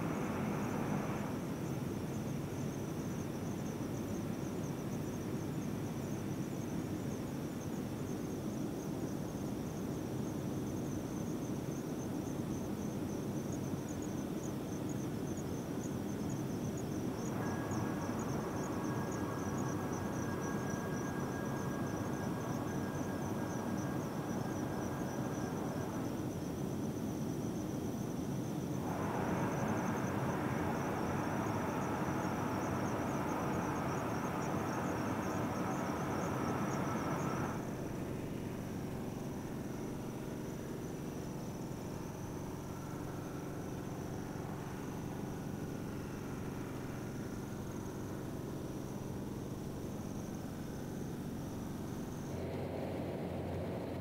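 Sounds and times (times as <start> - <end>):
insects trilling: 0.0 - 53.7
distant rushing of rocket venting: 28.8 - 48.5.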